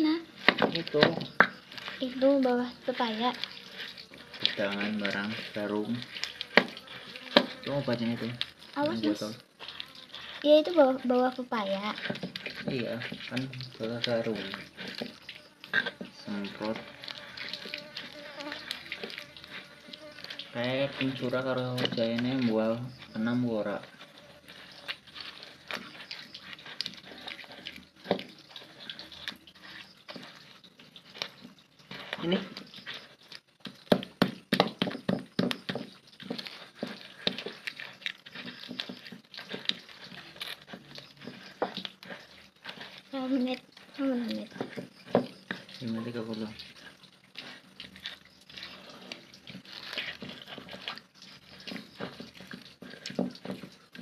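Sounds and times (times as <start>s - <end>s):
pestle grinding in stone mortar: 0.0s - 54.0s
pestle knocking: 0.4s - 1.6s, 33.6s - 37.6s, 44.6s - 45.7s.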